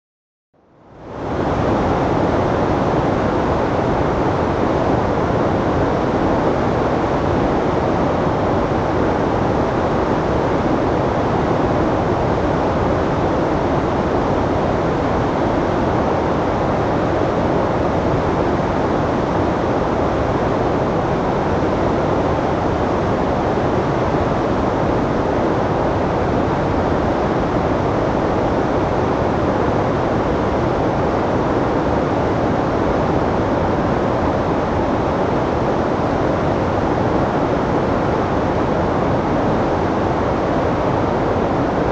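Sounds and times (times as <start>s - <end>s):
river rushing through rapids: 1.1s - 41.9s.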